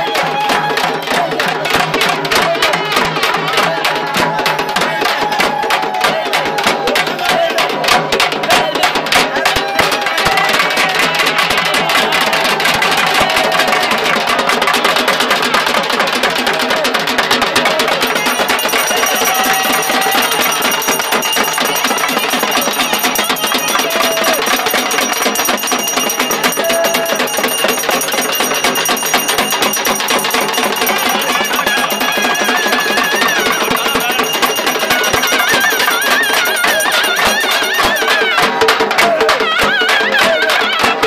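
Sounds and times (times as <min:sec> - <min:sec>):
frame drums beating fast: 0:00.0 - 0:41.0
wavering reed melody: 0:18.1 - 0:38.2.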